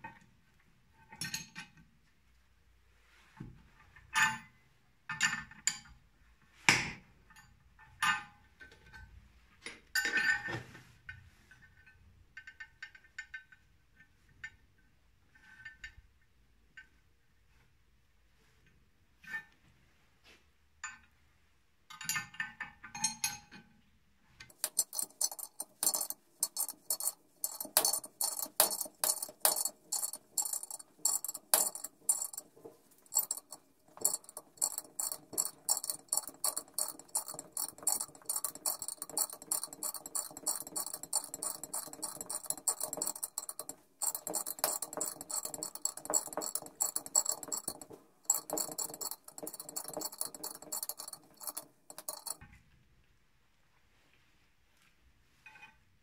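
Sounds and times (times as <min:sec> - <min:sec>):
metal clinks: 0:24.5 - 0:52.4
ratchet wrench clicking: 0:24.5 - 0:52.4.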